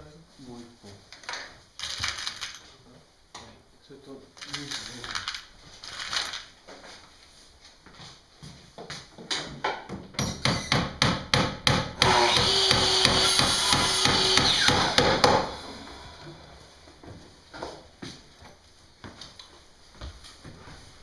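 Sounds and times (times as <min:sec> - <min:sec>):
hammer strikes: 0:10.2 - 0:15.5
power tool running: 0:12.0 - 0:16.6.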